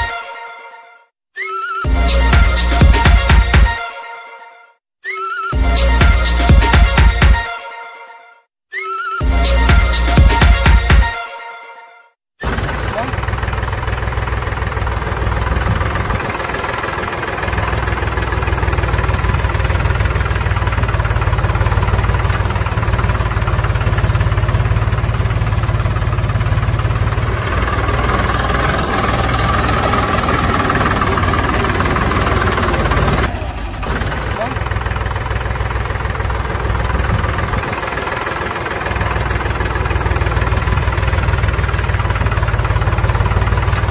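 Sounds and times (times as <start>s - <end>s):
engine running with low rumble: 12.5s - 43.9s.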